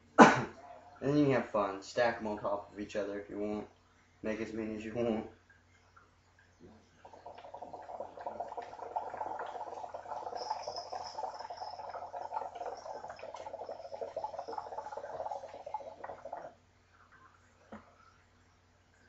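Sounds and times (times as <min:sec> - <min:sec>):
water bubbling in a bong: 0:06.5 - 0:16.6.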